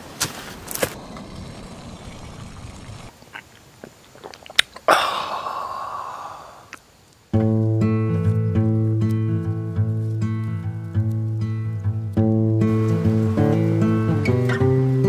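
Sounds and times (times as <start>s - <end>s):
footsteps on leaf litter: 0.0s - 1.0s
person chewing and biting food: 3.1s - 4.9s
acoustic guitar music: 7.3s - 15.0s.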